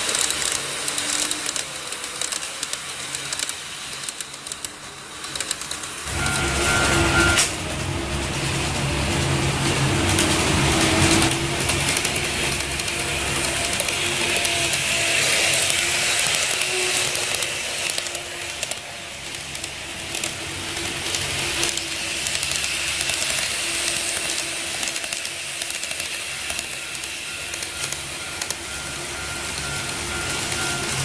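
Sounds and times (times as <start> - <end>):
model train hiss: 0.0 - 6.1, 9.7 - 30.9
wheels clicking over rail joints: 0.0 - 31.0
higher steady tone: 6.1 - 10.0.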